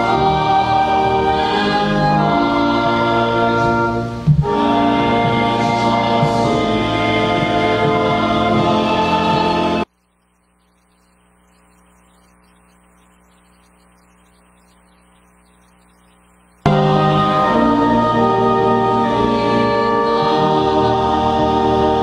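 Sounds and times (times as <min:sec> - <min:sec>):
congregation singing a hymn: 0:00.0 - 0:09.9, 0:16.7 - 0:22.0
faint steady hum: 0:00.0 - 0:22.0
instrumental accompaniment: 0:16.7 - 0:22.0.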